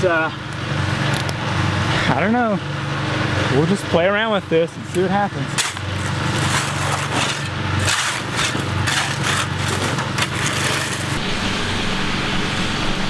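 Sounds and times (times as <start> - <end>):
concrete mixer engine running: 0.0 - 13.0
shovel scraping concrete mix: 5.5 - 11.2.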